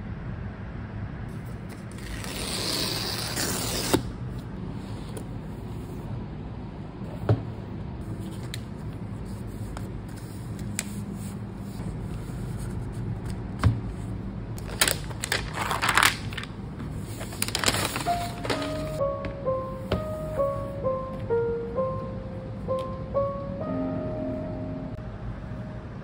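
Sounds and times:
protective wrap crinkling: 14.6s - 19.0s.

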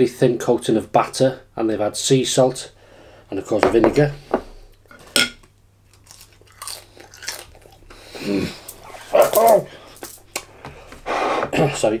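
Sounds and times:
crunchy chewing: 5.8s - 10.5s
crisp bite: 5.9s - 10.2s.

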